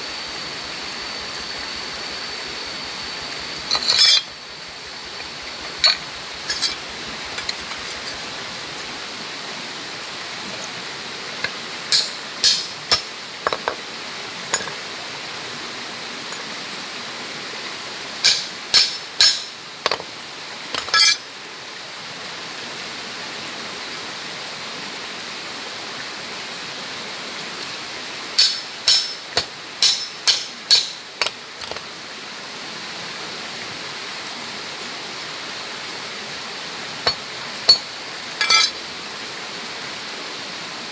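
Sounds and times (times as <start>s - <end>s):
steady hiss: 0.0s - 40.9s
wire tapping on metal hammer: 11.4s - 13.8s, 18.2s - 20.0s, 28.4s - 31.8s, 38.4s - 38.8s.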